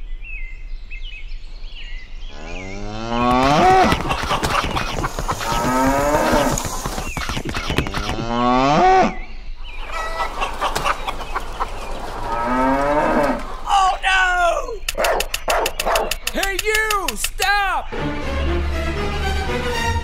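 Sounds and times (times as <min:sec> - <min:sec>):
cattle mooing: 0:02.4 - 0:03.9, 0:05.5 - 0:06.5, 0:12.2 - 0:13.7
rapid clicking: 0:03.3 - 0:08.3, 0:14.8 - 0:17.4.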